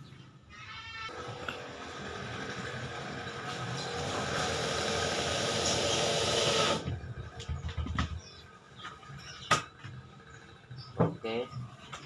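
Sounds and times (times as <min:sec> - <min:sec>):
electric drill running: 0:01.1 - 0:06.9.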